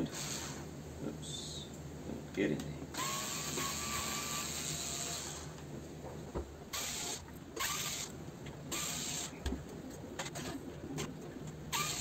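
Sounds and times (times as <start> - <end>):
drill-driver motor whirring: 0.1 - 0.6, 3.0 - 5.6, 6.7 - 8.1, 8.7 - 9.4, 11.7 - 12.0.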